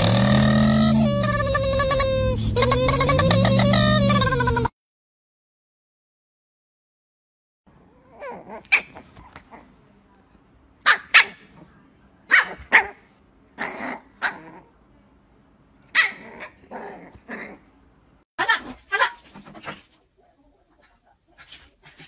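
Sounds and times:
puppy yapping: 0:08.0 - 0:09.7, 0:10.8 - 0:11.6, 0:12.3 - 0:14.7, 0:15.9 - 0:17.6.

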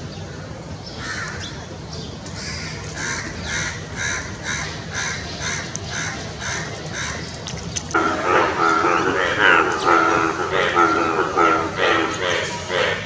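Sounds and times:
bullfrogs croaking: 0:07.9 - 0:13.0.

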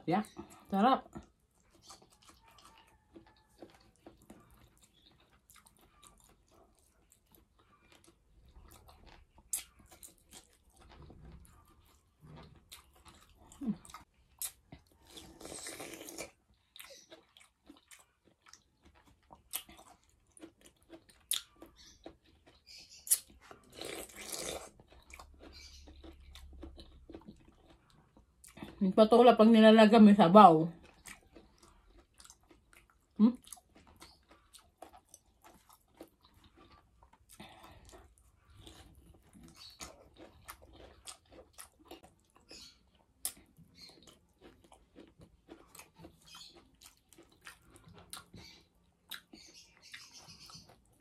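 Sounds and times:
chewing and crunching food: 0:00.0 - 0:51.0
wet mouth sounds: 0:13.3 - 0:17.4, 0:21.0 - 0:26.8.

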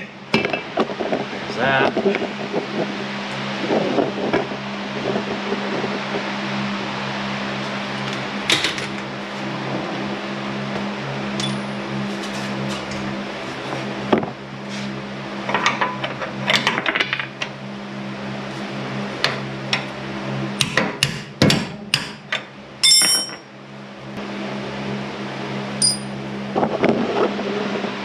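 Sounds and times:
steady low hum: 0:00.0 - 0:28.0
ringing metallic clang: 0:11.4 - 0:11.8, 0:22.8 - 0:23.5, 0:25.8 - 0:26.2.

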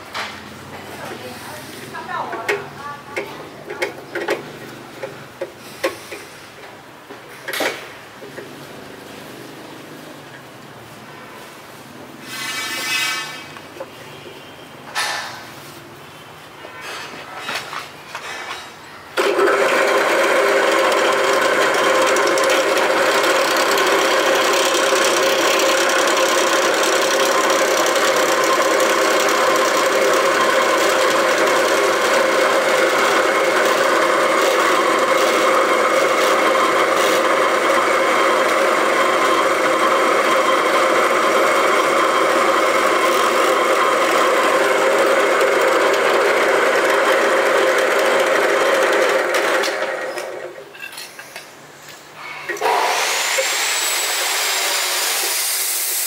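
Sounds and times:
drill press running: 0:19.2 - 0:50.6, 0:52.5 - 0:56.0.

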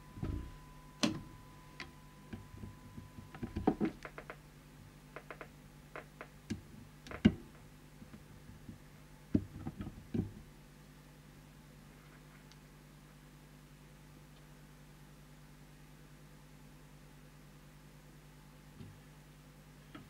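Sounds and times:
steady low hum: 0:00.0 - 0:20.0
clicks and knocks in radio chassis: 0:03.3 - 0:04.4, 0:05.2 - 0:07.6.

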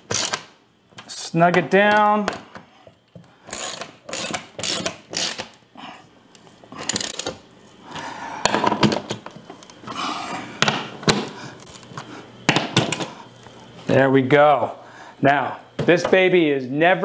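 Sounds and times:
ratchet wrench clicking: 0:00.1 - 0:00.5, 0:03.5 - 0:05.6.

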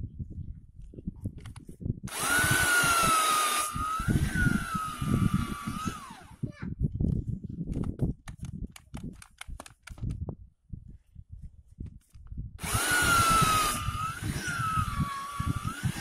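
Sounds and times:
mixer motor whining: 0:02.1 - 0:06.4, 0:12.6 - 0:16.0
handling knocks and clicks: 0:07.1 - 0:10.2.

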